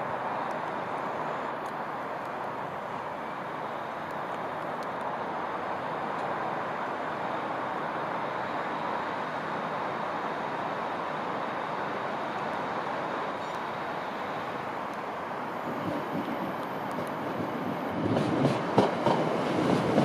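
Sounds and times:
train running noise: 0.0 - 20.0.

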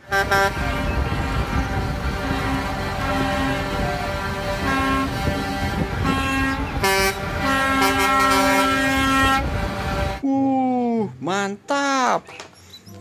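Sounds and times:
truck air horn blasts: 0.0 - 10.2
truck engines rumbling: 0.0 - 13.0.

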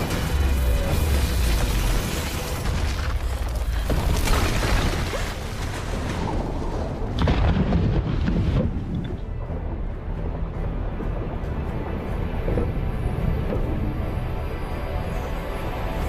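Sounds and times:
deep rumbling explosions: 2.6 - 9.8.

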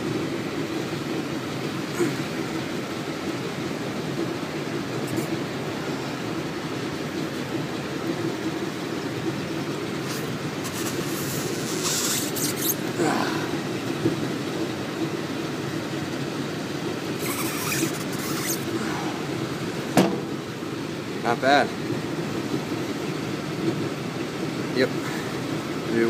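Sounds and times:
machinery hum: 0.0 - 23.4
knife scraping through rubber: 10.1 - 12.8.

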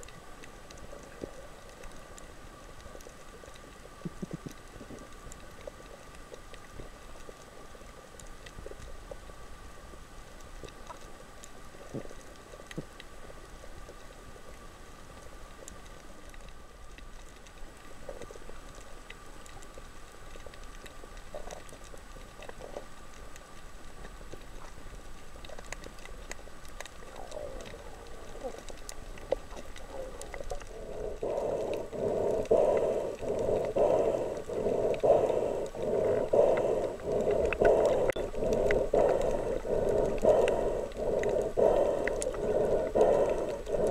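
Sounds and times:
crackling clicks: 0.0 - 43.9
faint underwater hiss: 0.0 - 43.9
rhythmic pulsing water noise: 0.0 - 43.9
faint steady tone: 22.8 - 43.9.

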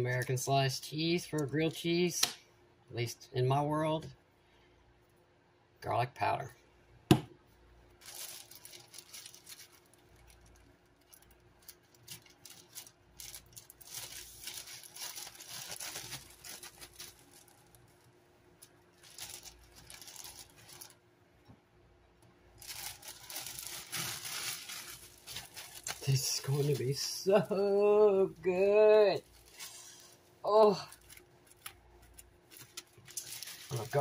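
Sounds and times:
plastic bread bag crinkling: 7.9 - 21.0, 22.5 - 34.0.

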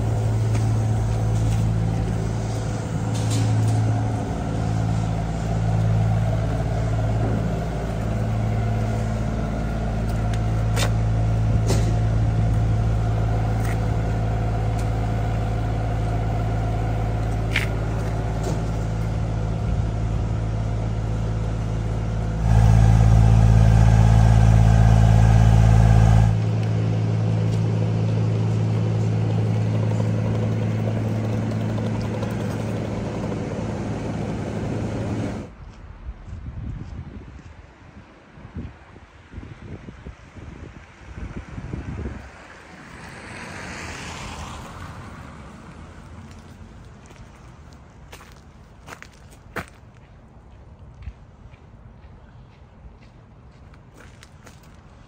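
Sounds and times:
vehicle engine idling hum: 0.0 - 35.8.

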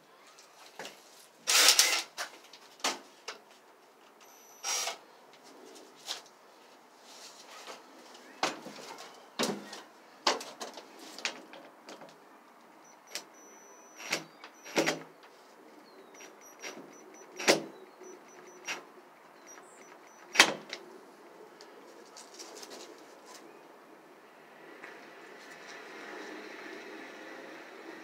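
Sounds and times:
drill whine: 4.2 - 5.0, 12.8 - 14.9.

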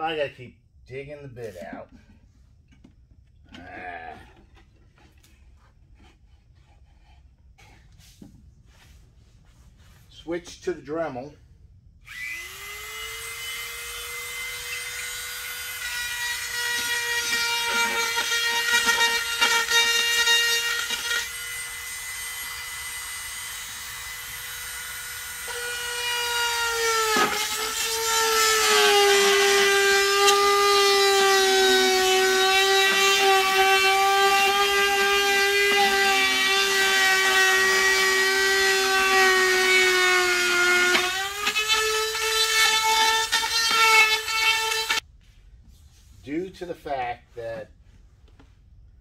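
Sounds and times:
rotary tool whining: 12.0 - 45.0.

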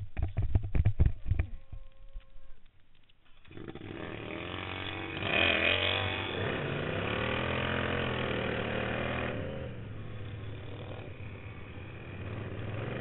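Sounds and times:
lawn tractor engine accelerating: 3.3 - 13.0.

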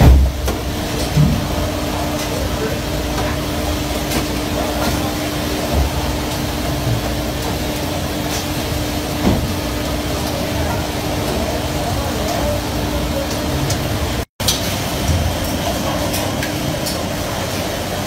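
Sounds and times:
sea water churning along hull: 0.0 - 14.2.

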